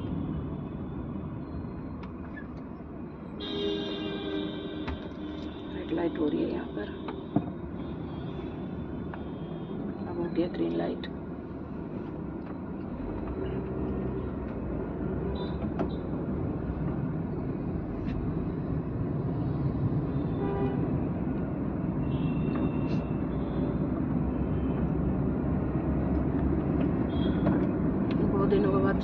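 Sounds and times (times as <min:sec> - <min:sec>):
car engine and road noise: 0:00.0 - 0:29.0
vehicle horn toots: 0:03.4 - 0:05.7.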